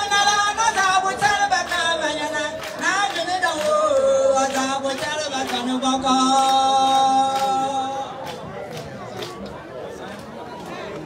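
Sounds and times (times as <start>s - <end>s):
women singing: 0.0s - 8.1s
handclaps: 0.2s - 9.6s.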